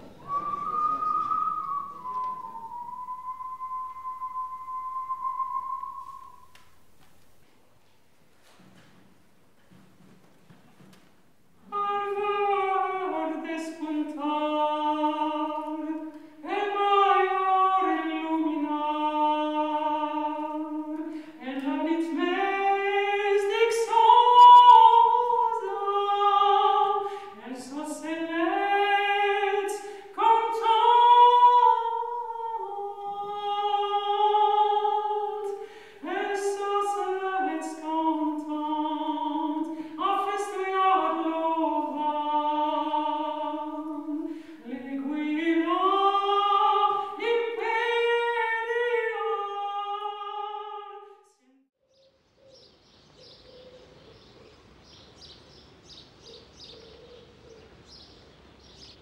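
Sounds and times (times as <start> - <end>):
man singing unaccompanied: 11.7 - 51.1.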